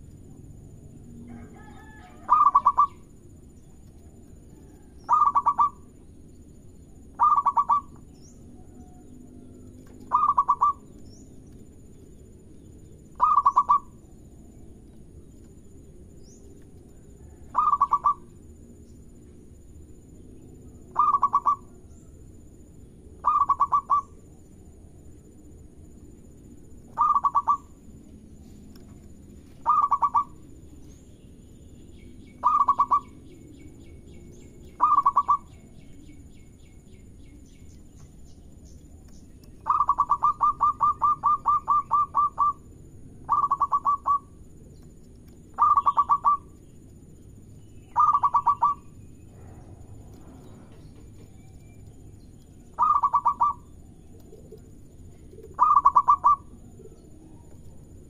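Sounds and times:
dove cooing: 1.3s - 3.1s, 4.6s - 5.8s, 7.1s - 8.0s, 8.6s - 10.9s, 13.2s - 14.0s, 17.2s - 18.3s, 20.9s - 21.8s, 23.2s - 24.2s, 26.9s - 27.8s, 29.6s - 30.4s, 32.4s - 33.2s, 34.8s - 35.5s, 39.6s - 42.6s, 43.2s - 44.4s, 45.6s - 46.6s, 47.9s - 48.8s, 52.8s - 57.7s.

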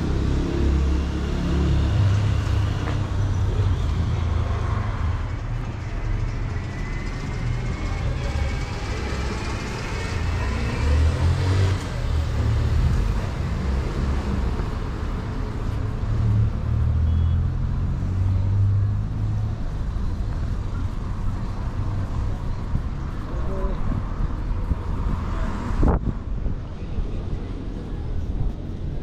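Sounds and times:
traffic passing: 0.0s - 29.0s.

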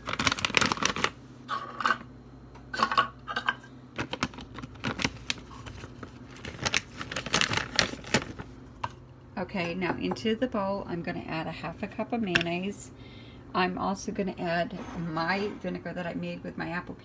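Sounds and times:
plastic pouch crinkling: 0.0s - 1.2s, 4.0s - 8.6s.

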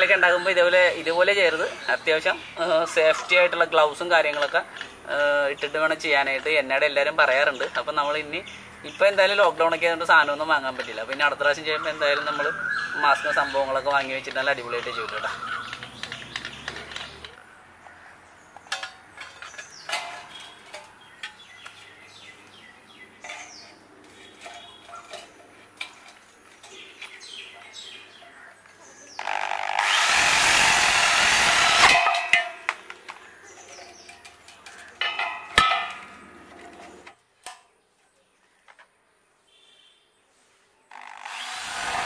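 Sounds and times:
clicks and knocks of hand work: 14.8s - 17.4s
power tool whine: 29.2s - 32.0s, 40.9s - 42.0s.

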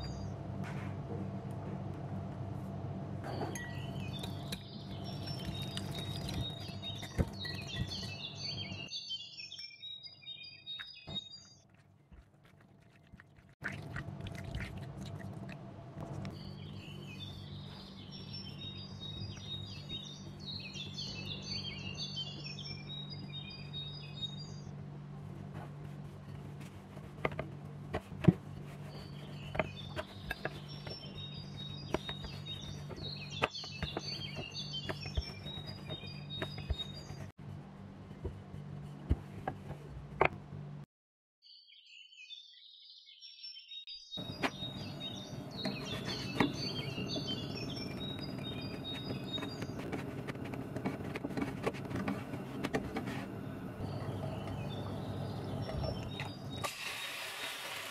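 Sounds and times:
small bird chirping: 3.4s - 11.6s, 16.3s - 24.7s, 28.8s - 37.3s, 41.5s - 52.3s, 53.7s - 56.7s
steady low hum: 44.2s - 56.6s.

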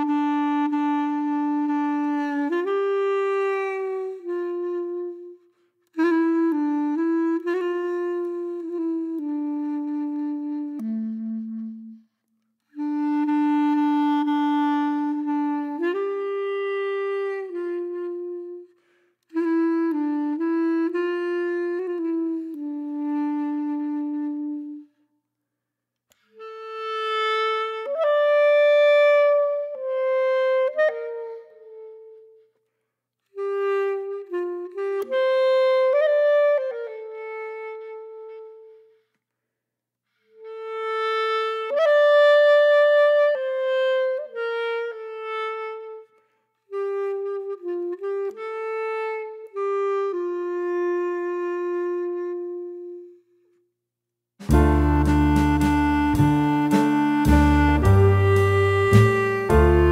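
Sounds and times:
slow solo melody: 54.5s - 59.9s.

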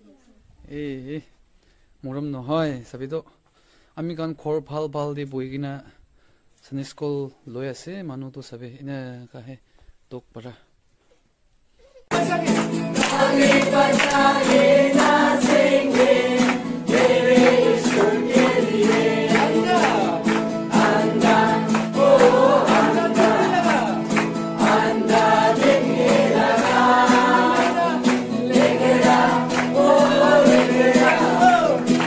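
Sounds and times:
group of voices singing: 12.1s - 32.0s
steady beat: 12.1s - 32.0s.

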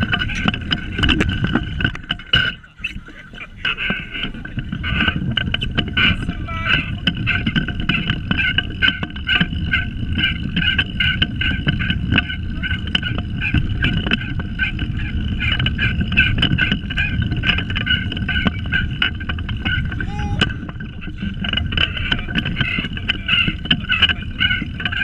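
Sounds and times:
go-kart frame clicking and rattling: 0.0s - 25.0s
wheels rumbling on asphalt: 0.0s - 25.0s.

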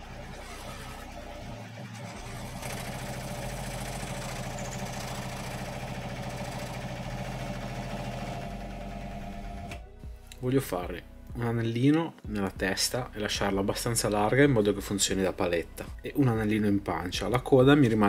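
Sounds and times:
electric scroll saw cutting wood: 0.0s - 9.8s.

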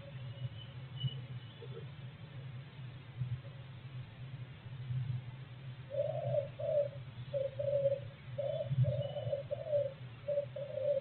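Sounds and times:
steady low hum: 0.0s - 11.0s
pigeon cooing: 5.9s - 11.0s.

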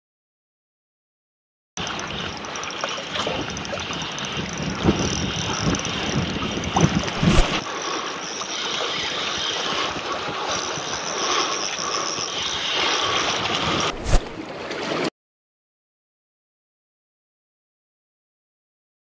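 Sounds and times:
wind rumbling on microphone: 3.2s - 7.6s, 12.1s - 14.4s.

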